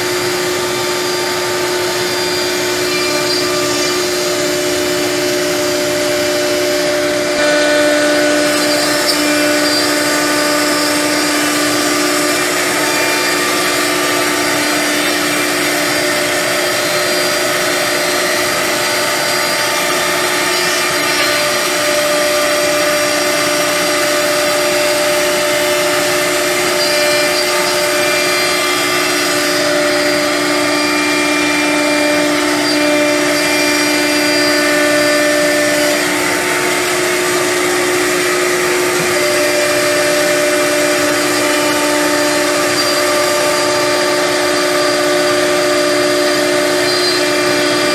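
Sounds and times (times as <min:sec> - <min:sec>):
router spindle whine: 0:00.0 - 0:47.9.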